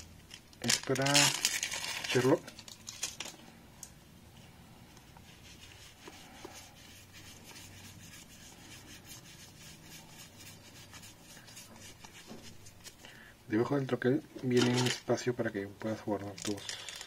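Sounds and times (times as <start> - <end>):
playing cards sliding: 5.2 - 13.0.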